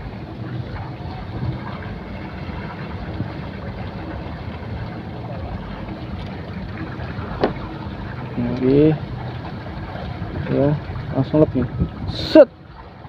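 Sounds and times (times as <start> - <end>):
small engine droning: 0.0 - 13.0
wind on microphone: 9.4 - 13.0.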